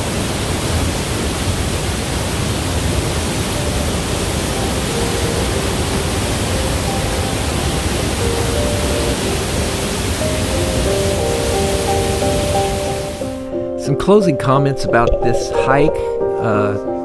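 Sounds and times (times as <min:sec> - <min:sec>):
waterfall rushing: 0:00.0 - 0:13.6.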